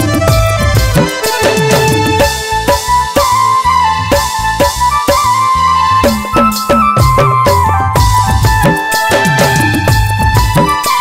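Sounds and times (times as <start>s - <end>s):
quick drum beat: 0.0s - 3.3s, 6.0s - 11.0s
bass: 0.0s - 11.0s
flute melody: 0.0s - 11.0s.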